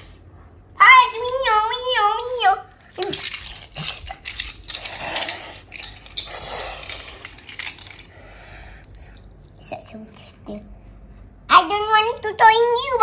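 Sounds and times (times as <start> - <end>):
toy cars clicking together: 2.8 - 10.6.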